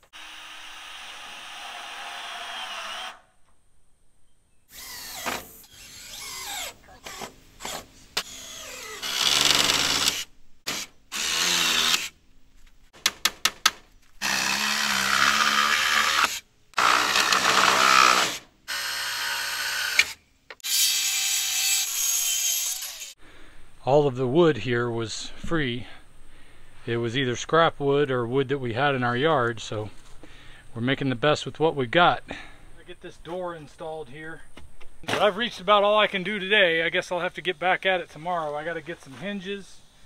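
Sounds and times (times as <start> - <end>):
cordless drill driving screws: 0.0 - 3.2, 4.7 - 12.1, 14.2 - 21.2.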